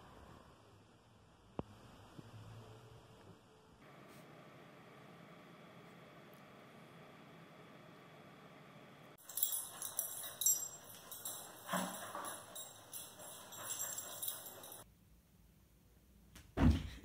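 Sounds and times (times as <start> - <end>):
dog collar tags jingling: 9.2 - 14.8.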